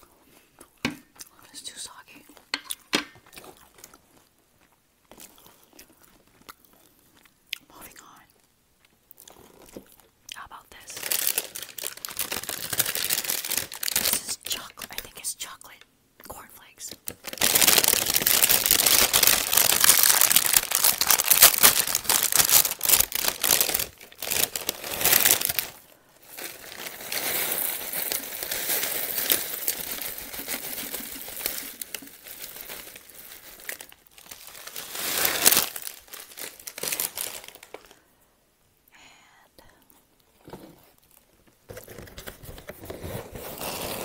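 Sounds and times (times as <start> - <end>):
plastic bag crinkling: 10.7 - 15.3, 16.6 - 38.0
cereal rattling into bowl: 26.5 - 36.3.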